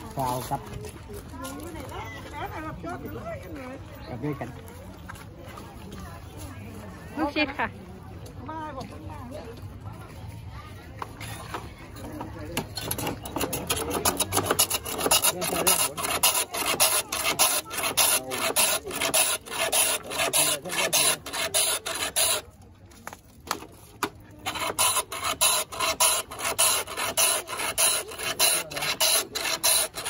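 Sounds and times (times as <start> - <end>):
ice scraped over shaving blade: 12.8 - 22.6, 23.5 - 30.0.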